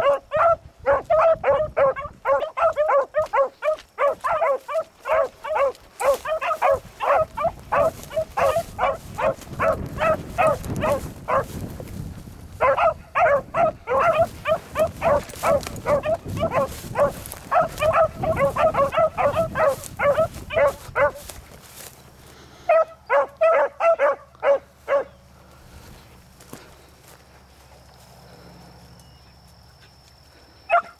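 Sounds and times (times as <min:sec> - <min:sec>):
beagles barking in short yelps: 0:00.0 - 0:11.5, 0:12.6 - 0:21.2, 0:22.7 - 0:25.1.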